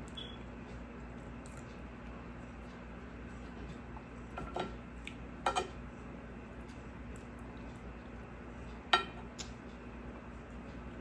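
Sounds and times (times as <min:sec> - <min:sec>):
steady low hum: 0:00.0 - 0:11.0
spoon clinking and scraping on plate: 0:05.4 - 0:05.8.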